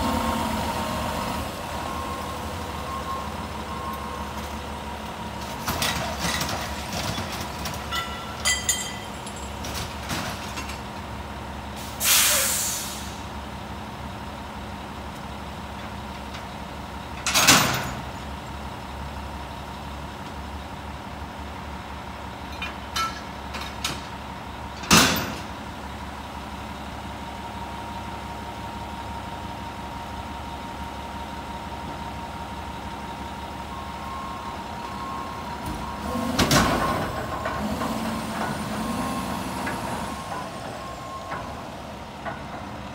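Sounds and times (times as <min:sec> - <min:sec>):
garbage truck engine whining: 0:00.0 - 0:11.1, 0:23.9 - 0:42.9
air brake hiss: 0:11.8 - 0:13.3.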